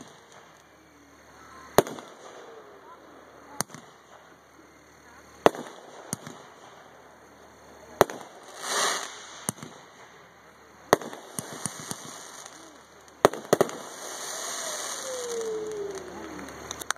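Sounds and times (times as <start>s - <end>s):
firework shells bursting: 0.0s - 16.9s
steady hiss: 0.0s - 16.9s.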